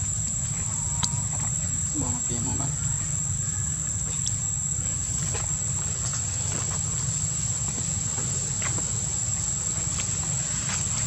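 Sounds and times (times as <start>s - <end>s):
insects droning: 0.0s - 11.0s.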